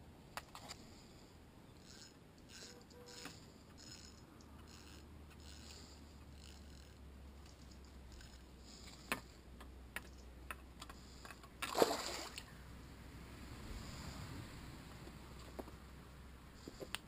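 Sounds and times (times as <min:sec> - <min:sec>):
splash in river water: 0:11.7 - 0:12.4.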